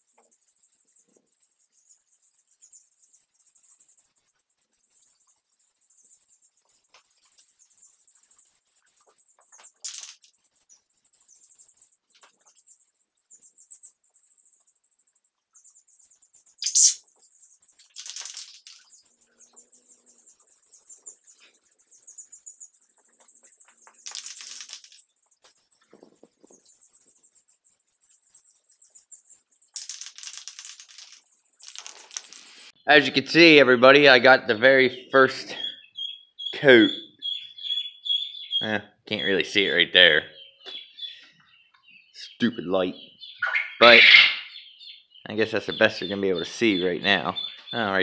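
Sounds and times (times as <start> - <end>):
aerosol spray can hissing: 16.6 - 17.0.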